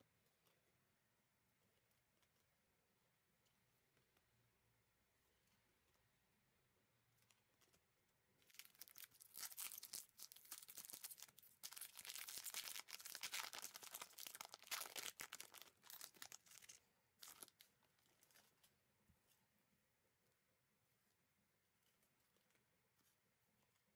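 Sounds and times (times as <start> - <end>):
plastic wrapper tearing and crinkling: 8.4 - 18.4.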